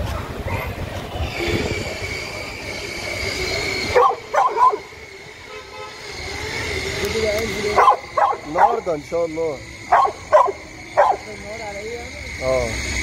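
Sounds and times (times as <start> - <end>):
dog barking: 4.0 - 4.9, 7.8 - 8.9, 9.9 - 11.3.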